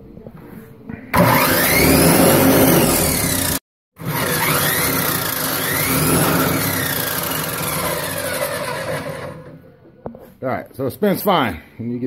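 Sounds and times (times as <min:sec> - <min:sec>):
electric motor whining: 0:01.2 - 0:09.6.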